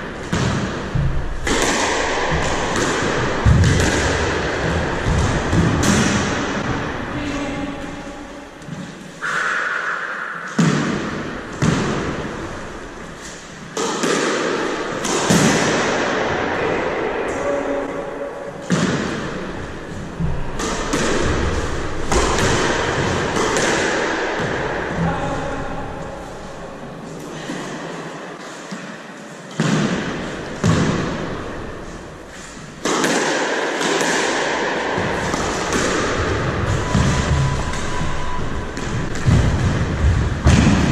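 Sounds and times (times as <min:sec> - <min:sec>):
steady din: 0:00.0 - 0:08.6, 0:34.4 - 0:40.9
squash ball hitting racket and walls: 0:00.0 - 0:40.9.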